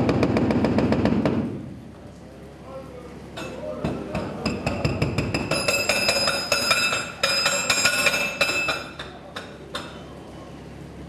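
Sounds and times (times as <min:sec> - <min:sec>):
hydraulic breaker hammering rock: 0:00.0 - 0:01.6, 0:03.8 - 0:10.0.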